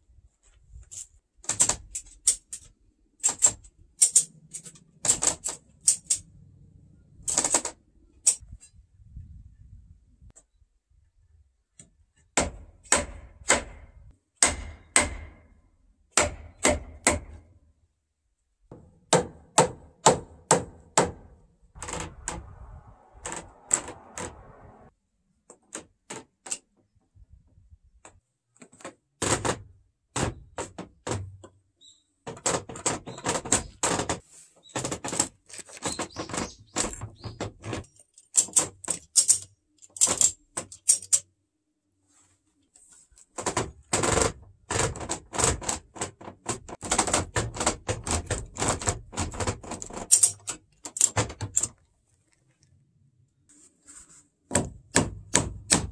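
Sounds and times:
hammering on timber: 12.4 - 15.5, 16.1 - 17.4, 18.7 - 21.3, 54.5 - 55.9.

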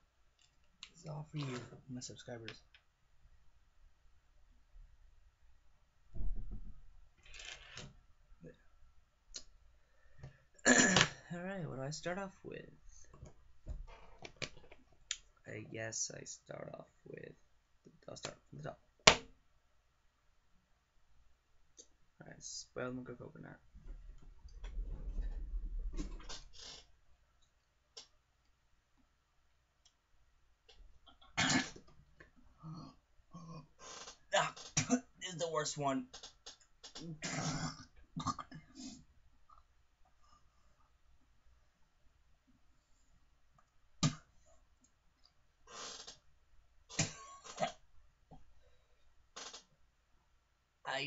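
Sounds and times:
person gagging and coughing: 10.6 - 11.2, 31.4 - 31.8, 34.4 - 35.1, 37.1 - 38.6
person retching: 10.6 - 11.2, 31.1 - 31.9, 32.6 - 35.2, 36.9 - 39.0, 46.9 - 47.8.

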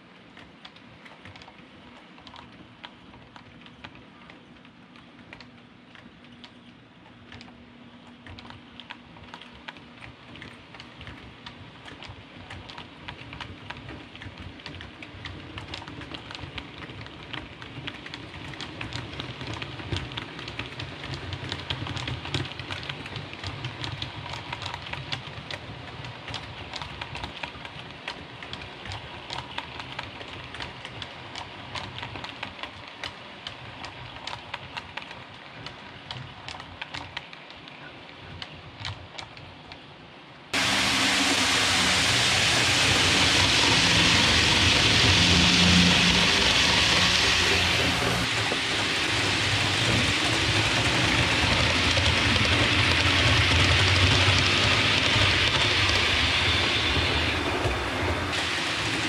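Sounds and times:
model train wheels clicking: 0.0 - 39.8, 40.5 - 59.0
low motor hum: 40.6 - 59.0.

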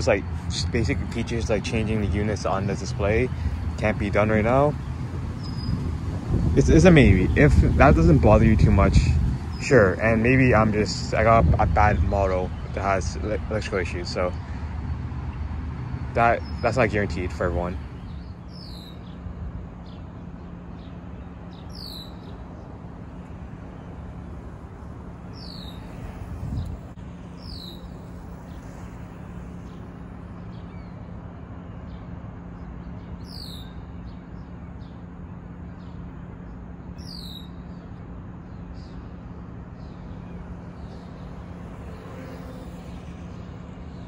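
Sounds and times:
outdoor background noise: 0.0 - 44.0
steady low hum: 16.1 - 31.4.

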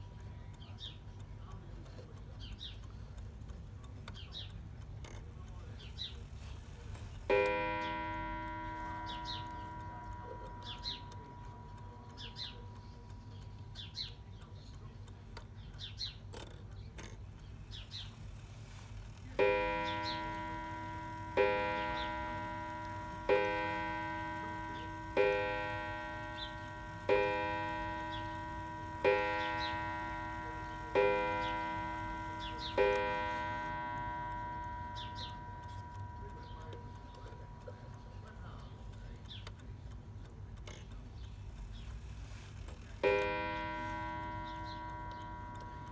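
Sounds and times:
clock striking on gong: 7.3 - 13.1, 19.4 - 38.0, 43.0 - 45.9.

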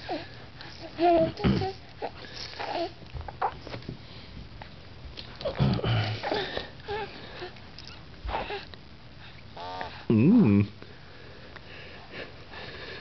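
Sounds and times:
baby breathing and grunting: 0.0 - 3.5, 5.4 - 7.6, 8.3 - 8.7.

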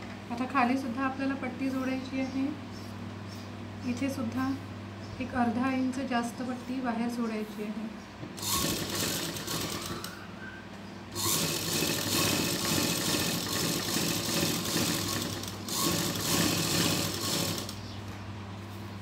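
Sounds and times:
sewing machine running: 8.4 - 10.2, 11.2 - 17.8.

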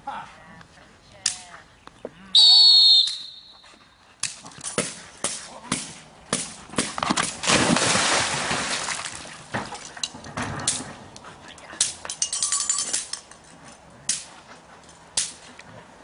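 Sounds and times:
stick striking cracks: 4.2 - 7.8, 11.8 - 12.2, 15.2 - 15.5.

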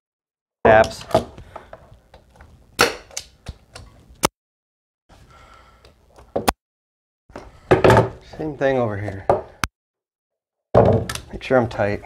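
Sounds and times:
nail gun shots: 2.8 - 3.2.

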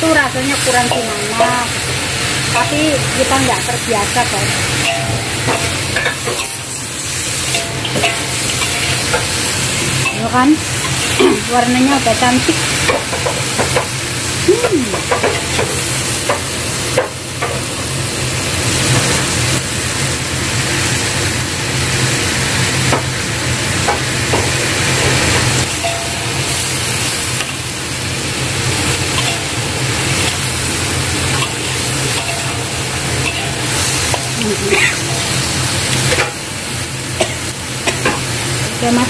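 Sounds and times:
food sizzling in a wok: 0.0 - 39.0
metal spatula scraping wok: 29.0 - 36.3.

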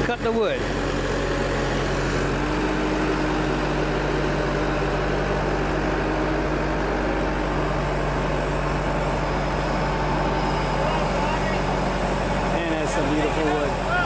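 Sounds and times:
engine running steadily: 0.0 - 14.0.

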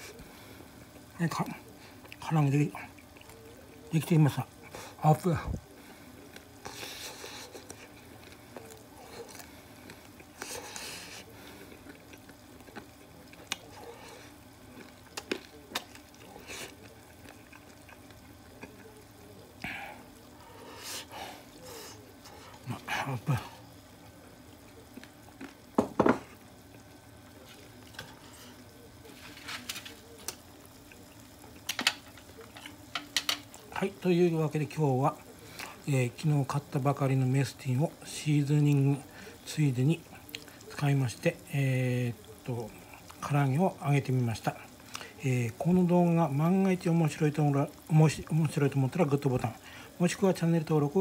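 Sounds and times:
small clicks and crunches of eating: 0.9 - 4.9, 5.6 - 20.4, 21.5 - 33.8, 35.1 - 35.8, 40.0 - 41.2, 42.2 - 43.3, 44.5 - 45.7.

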